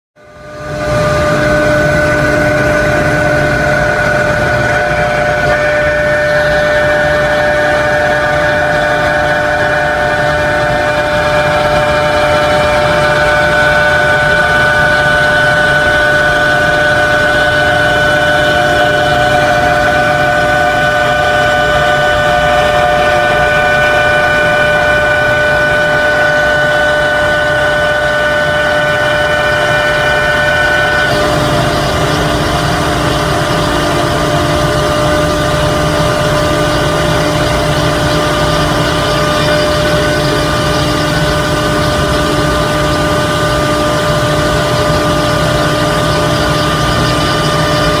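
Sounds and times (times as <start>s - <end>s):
router spindle whining: 0.2s - 48.0s.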